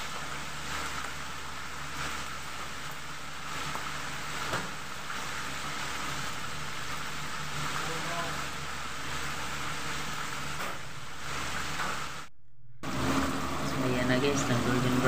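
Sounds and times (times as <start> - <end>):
chicken deep-frying in oil: 0.0 - 15.0
low steady hum: 12.2 - 15.0.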